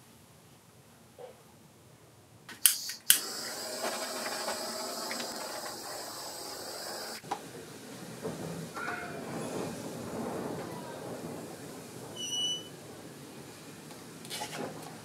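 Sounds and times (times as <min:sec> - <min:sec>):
torch igniter clicks: 0:02.5 - 0:07.2
torch flame hissing: 0:02.6 - 0:07.2.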